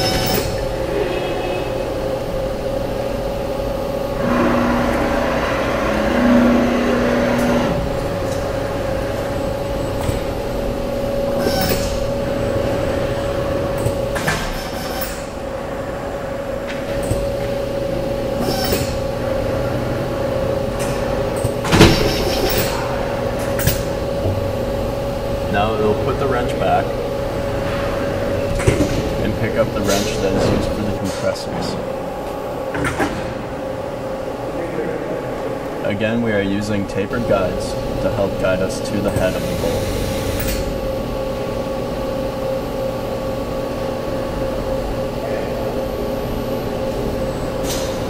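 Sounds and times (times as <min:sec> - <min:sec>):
steady machine hum: 0:00.0 - 0:48.0
air wrench running: 0:04.2 - 0:12.6.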